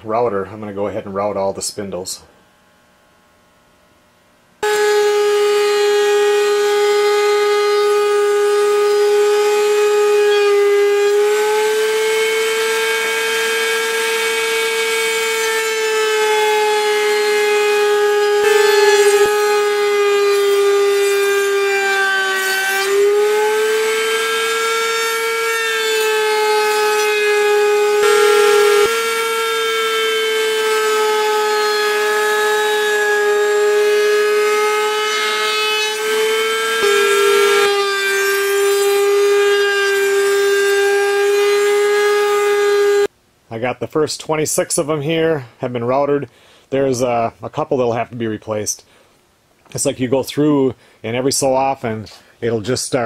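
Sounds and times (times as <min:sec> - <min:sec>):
router whining while cutting wood: 0:04.6 - 0:43.1.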